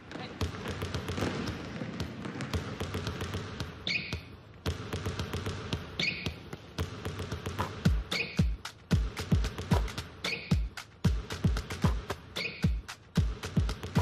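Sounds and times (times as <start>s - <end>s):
basketballs bouncing on wood floor: 0.0s - 14.0s
sneaker squeak: 3.6s - 4.4s, 5.9s - 6.6s, 7.9s - 8.6s, 10.2s - 10.7s, 12.3s - 12.9s.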